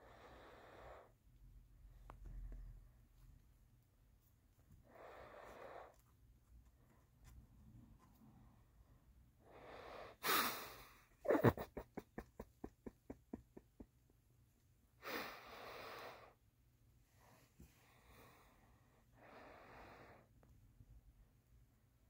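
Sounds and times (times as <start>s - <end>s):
snort of breath: 0.0s - 1.1s, 4.8s - 5.9s, 9.4s - 11.7s, 15.0s - 16.4s, 17.8s - 20.3s
person laughing breathily: 10.2s - 14.2s.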